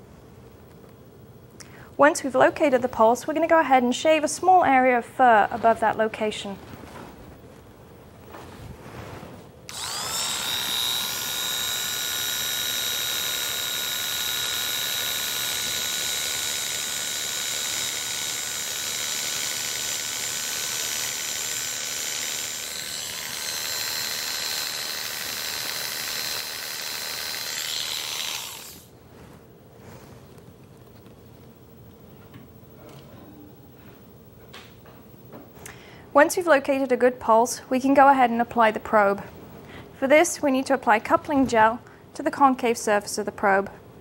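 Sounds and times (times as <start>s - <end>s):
electric hair clippers whining: 9.7s - 28.9s.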